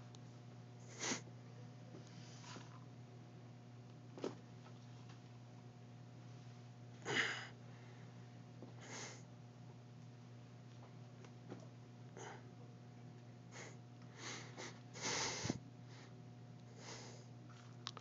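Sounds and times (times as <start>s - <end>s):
low room hum: 0.0s - 18.0s
person breathing noisily: 13.5s - 16.1s, 16.7s - 17.3s.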